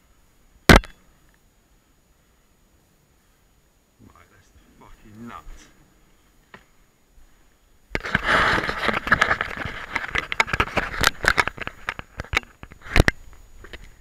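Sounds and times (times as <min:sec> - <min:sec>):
sharp clicks and crackles: 0:07.9 - 0:14.0
fingers rubbing on microphone: 0:08.0 - 0:13.2.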